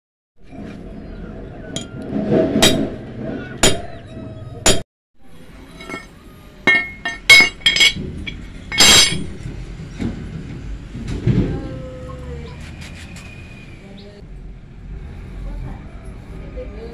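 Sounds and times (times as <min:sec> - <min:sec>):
steel clanking on stone: 0:05.7 - 0:09.5.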